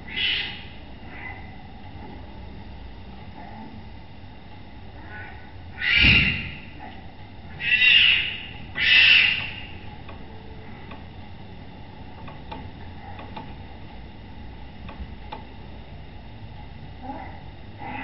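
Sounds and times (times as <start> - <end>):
tiger cub crying: 7.5 - 9.7.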